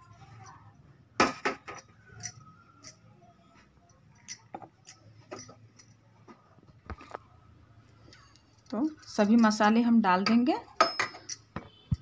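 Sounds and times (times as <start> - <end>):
utensils clinking on steel bowl: 1.3 - 3.1, 4.2 - 6.0, 8.2 - 11.6.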